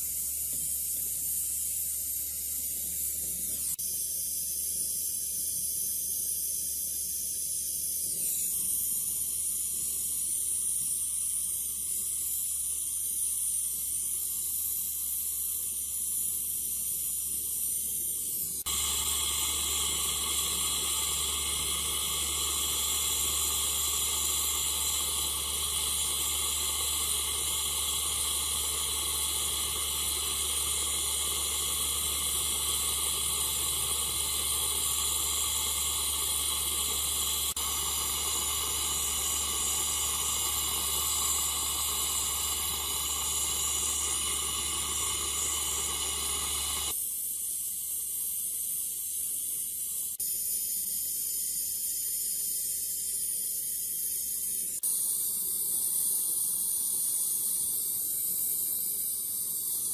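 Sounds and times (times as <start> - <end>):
torch flame hissing: 18.4 - 47.0.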